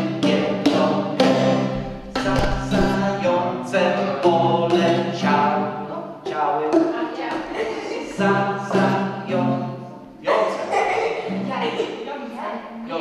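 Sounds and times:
acoustic guitar strumming: 0.0 - 5.9, 8.1 - 10.1
people singing: 0.0 - 11.4.

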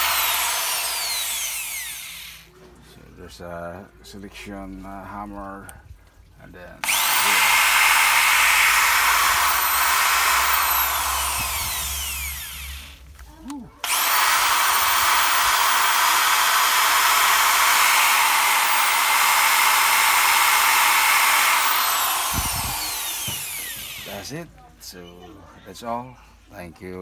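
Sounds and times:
electric drill motor running: 0.0 - 2.5, 6.8 - 13.2, 13.8 - 24.3.

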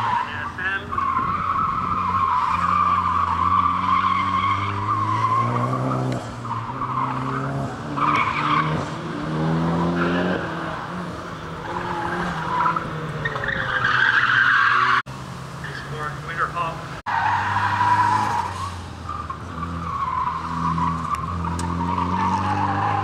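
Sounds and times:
car engine revving: 0.0 - 23.0
tires squealing: 0.0 - 23.0.

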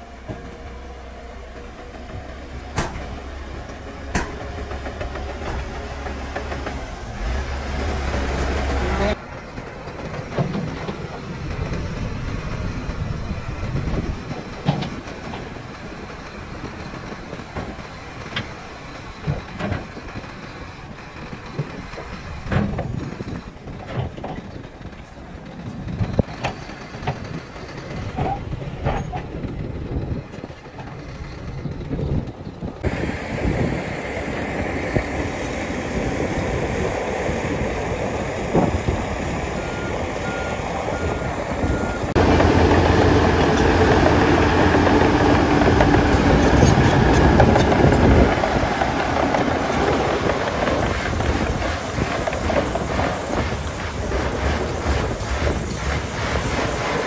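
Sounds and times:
diesel machinery rumbling: 0.0 - 57.0
sharp knocks and clanks: 1.5 - 9.2.

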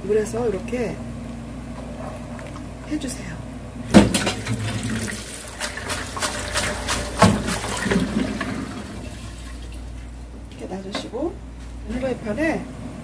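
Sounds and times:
water splashing into metal sink: 3.9 - 9.9.

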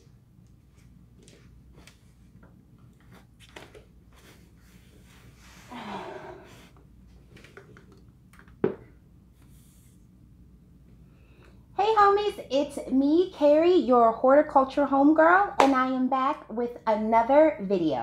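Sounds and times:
quiet footsteps: 0.0 - 4.4.

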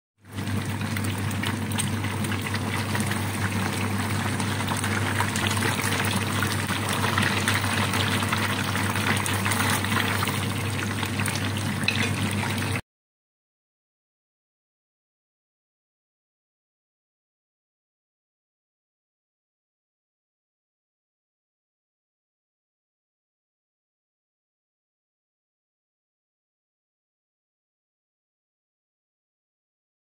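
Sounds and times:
tofu deep-frying in hot oil: 0.2 - 12.8.

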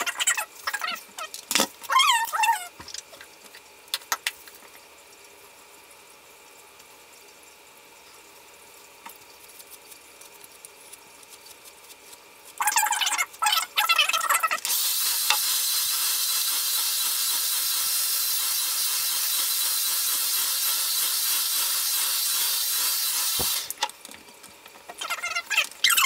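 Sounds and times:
hair dryer blowing: 22.5 - 23.7.

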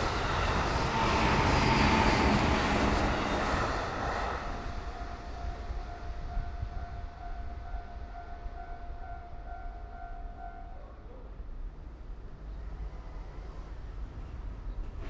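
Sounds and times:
passing train: 0.0 - 15.0
level crossing warning bell: 4.6 - 10.8.

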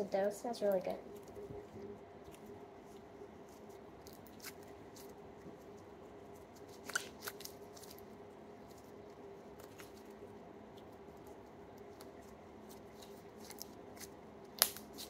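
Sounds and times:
slime clicking and popping: 14.5 - 15.0.

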